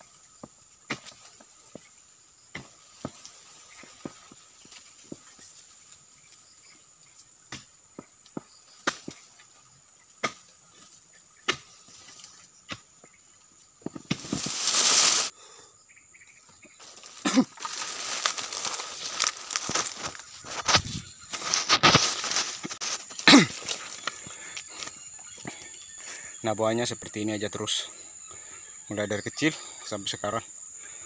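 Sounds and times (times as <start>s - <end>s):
leaves rustling: 0.0s - 7.3s, 13.4s - 15.5s, 16.8s - 26.4s
insects droning: 0.0s - 31.0s
palm fronds crashing: 14.0s - 15.3s, 16.8s - 24.2s.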